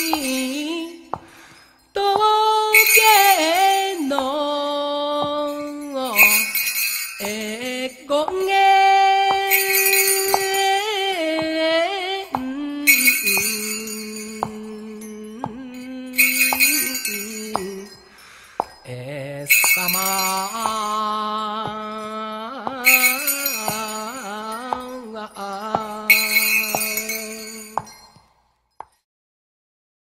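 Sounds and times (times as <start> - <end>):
slow folk song singing: 0.0 - 28.3
bells shaken: 0.0 - 29.0.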